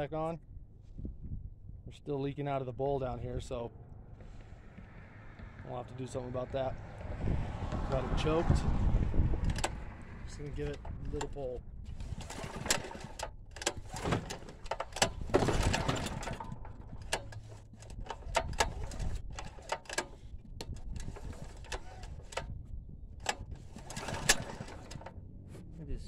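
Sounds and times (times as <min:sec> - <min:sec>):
engine turning over on pull-start: 0:05.7 - 0:22.5, 0:23.2 - 0:25.2
sharp clicks and knocks: 0:09.3 - 0:22.6, 0:23.2 - 0:25.2.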